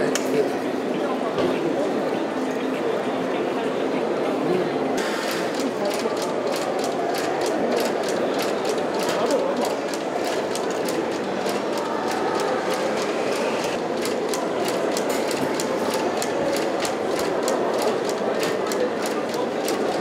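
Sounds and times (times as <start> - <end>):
machine running: 5.0 - 15.4.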